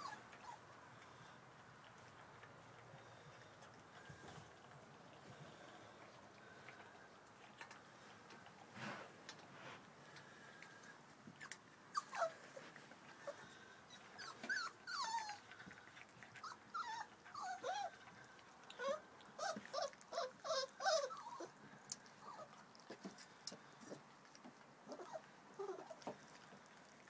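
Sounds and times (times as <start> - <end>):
puppies whimpering: 0.0 - 1.3, 10.4 - 23.0, 24.8 - 27.0.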